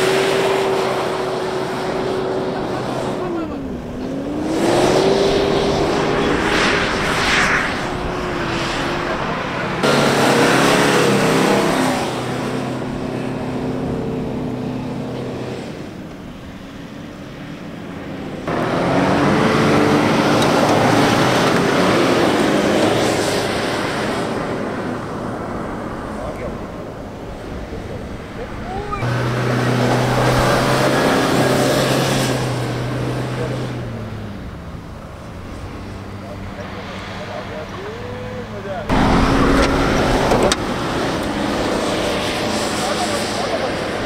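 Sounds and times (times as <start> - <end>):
engines revving hard: 0.0 - 44.0
tyres churning sand: 35.4 - 44.0.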